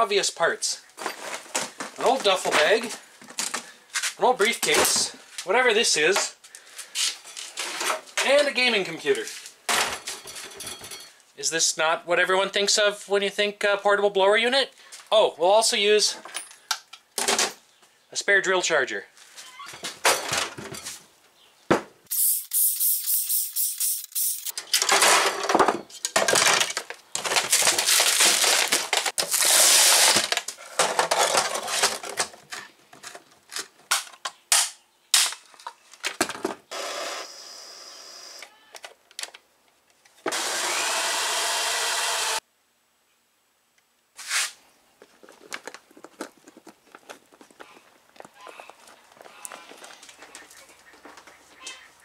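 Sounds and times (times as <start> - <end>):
parts clattering and scraping: 1.0 - 5.4, 6.8 - 8.4, 9.3 - 11.3, 19.2 - 21.1, 22.7 - 34.4, 44.3 - 50.5.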